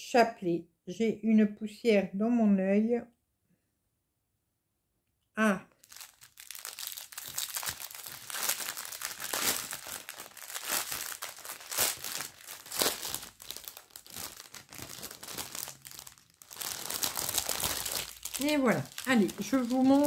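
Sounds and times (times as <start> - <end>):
plastic packaging crinkling: 5.8 - 20.0.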